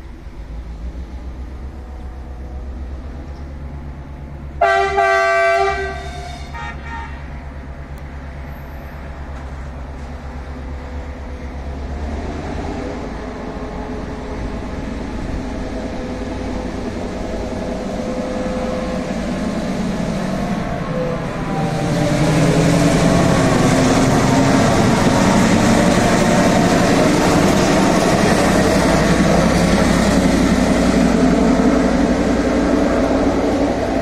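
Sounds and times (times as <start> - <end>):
diesel locomotive engine rumbling: 0.0 - 34.0
locomotive horn: 4.6 - 7.4.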